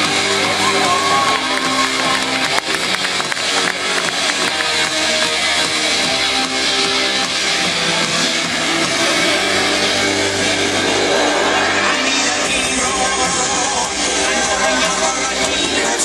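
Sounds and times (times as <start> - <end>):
loud rock music with electric guitar: 0.0 - 16.0.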